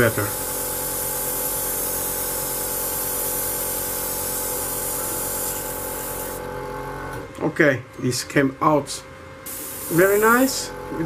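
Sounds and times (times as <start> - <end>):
airbrush hissing: 0.0 - 6.4, 9.5 - 10.5
steady hum: 0.0 - 6.5, 7.1 - 11.0.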